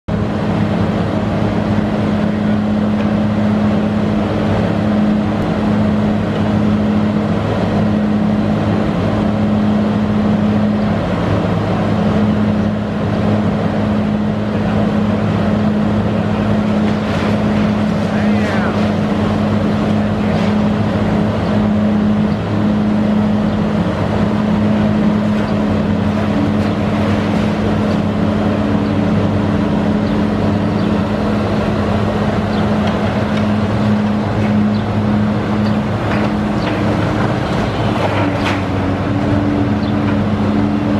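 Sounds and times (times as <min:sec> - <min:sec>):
excavator diesel engine running: 0:00.1 - 0:40.9.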